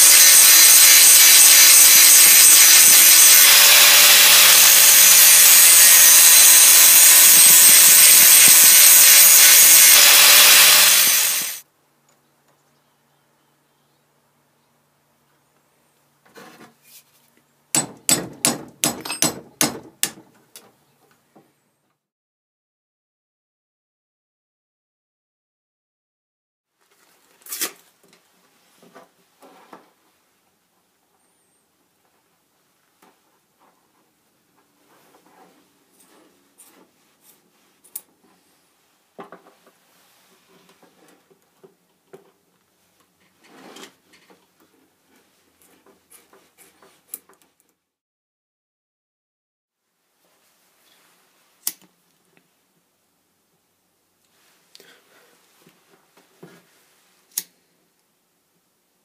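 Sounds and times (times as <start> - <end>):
rustling scrape: 16.3 - 17.4, 34.8 - 38.7, 43.2 - 44.2
hammer striking steel punch: 17.8 - 20.3.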